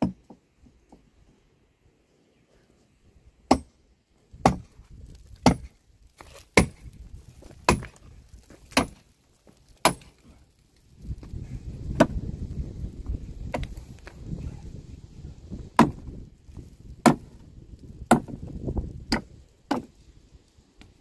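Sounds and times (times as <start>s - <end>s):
axe chopping tree roots: 3.5s - 3.8s, 4.4s - 4.7s, 5.3s - 6.9s, 7.5s - 8.0s, 8.6s - 9.1s, 9.8s - 10.2s, 11.9s - 12.2s, 15.7s - 16.2s, 17.0s - 17.4s, 18.1s - 20.0s.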